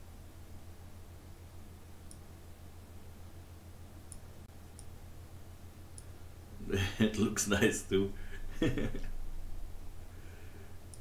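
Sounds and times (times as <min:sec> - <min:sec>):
low electrical hum: 0:00.0 - 0:11.0
computer mouse clicks: 0:02.0 - 0:02.3, 0:04.1 - 0:05.0, 0:05.9 - 0:06.1.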